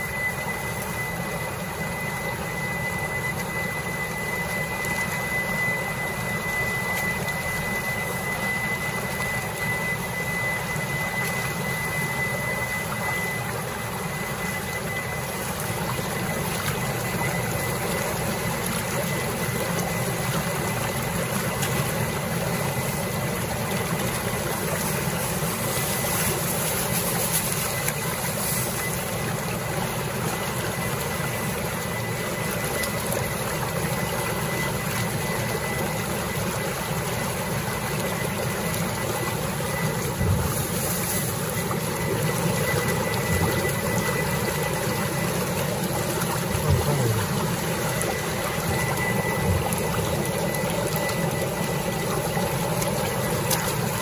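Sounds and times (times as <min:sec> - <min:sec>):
faint high whine: 0:00.0 - 0:54.0
pump hum: 0:00.0 - 0:54.0
water churning and splashing: 0:00.0 - 0:54.0.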